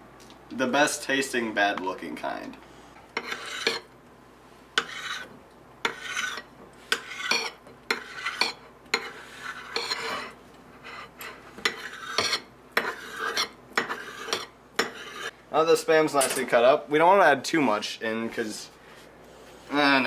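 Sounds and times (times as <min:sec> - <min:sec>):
blade scraping on ceramic plate: 0:03.2 - 0:03.9, 0:04.8 - 0:15.3.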